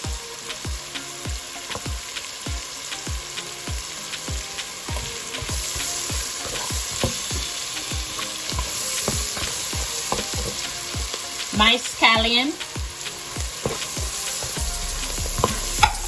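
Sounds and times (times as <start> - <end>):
vegetables sizzling in oil: 0.0 - 16.0
steady low thump: 12.8 - 16.0.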